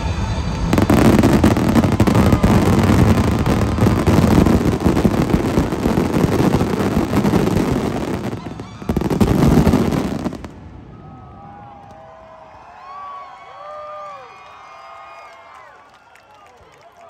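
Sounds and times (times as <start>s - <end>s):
fireworks bangs and crackling: 0.0s - 11.0s
crowd whooping and cheering: 0.0s - 17.0s.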